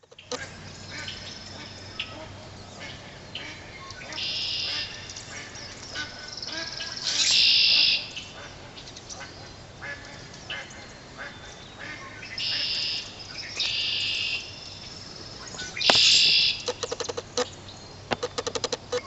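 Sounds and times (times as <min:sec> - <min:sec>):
loud harsh bird calls: 0:00.2 - 0:19.0
faint short bird calls: 0:09.2 - 0:17.5.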